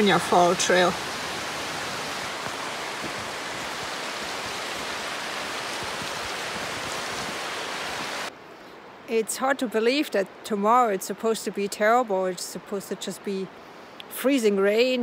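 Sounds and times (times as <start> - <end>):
river water rushing: 0.0 - 9.5.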